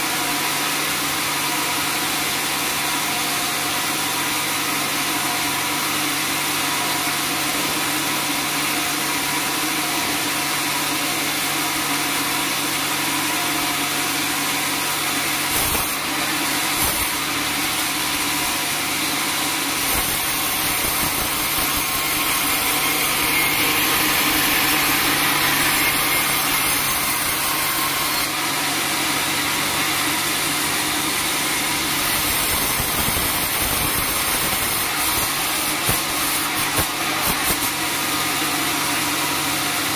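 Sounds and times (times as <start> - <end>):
band saw cutting log: 0.7 - 39.9
machine hum: 15.3 - 37.7.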